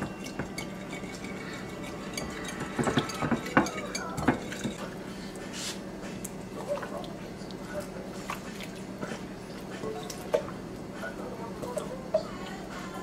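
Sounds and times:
metal whisk scraping glass bowl: 0.2s - 4.9s.

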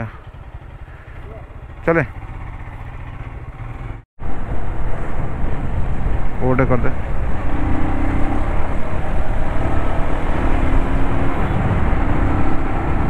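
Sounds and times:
motorcycle engine hum: 0.0s - 13.0s
wind rushing over microphone: 4.2s - 13.0s.

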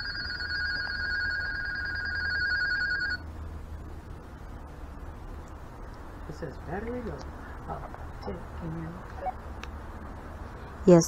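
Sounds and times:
two-way radio trilling ring: 0.0s - 3.2s
low hum: 0.0s - 10.9s.

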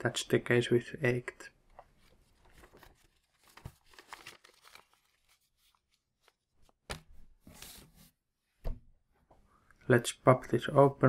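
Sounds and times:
paper rustling and crinkling: 1.8s - 8.1s.

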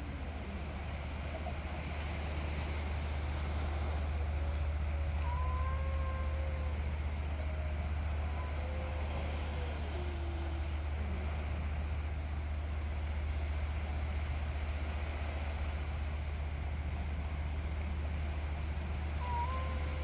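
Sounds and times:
faint tone gliding downward: 0.0s - 14.1s
steady low rumble: 0.0s - 20.0s.

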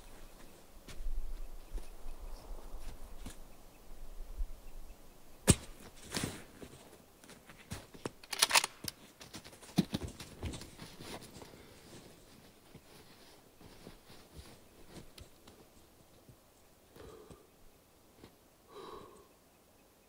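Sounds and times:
clothing rustling: 9.3s - 15.8s.

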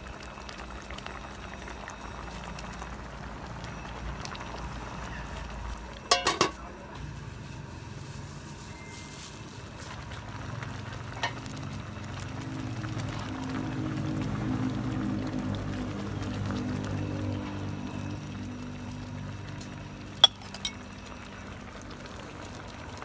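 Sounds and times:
soup bubbling in pot: 0.0s - 8.0s, 9.3s - 23.0s
metal pot lid clanking: 6.1s - 6.6s, 20.2s - 20.8s.

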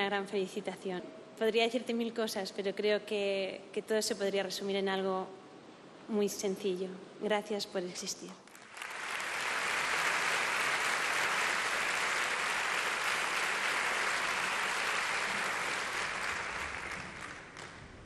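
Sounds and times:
audience applauding: 8.5s - 18.0s.

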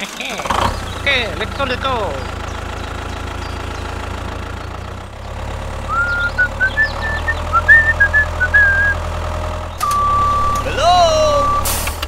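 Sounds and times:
tractor engine idling: 0.0s - 12.0s.

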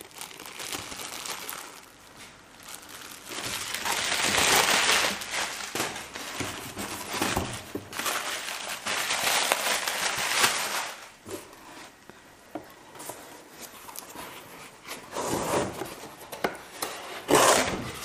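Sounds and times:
plastic packaging crinkling: 0.0s - 11.2s.

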